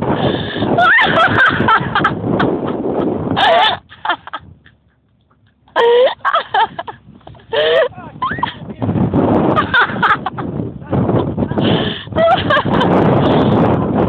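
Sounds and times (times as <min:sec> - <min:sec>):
loud rough rushing noise: 0:06.0 - 0:14.0.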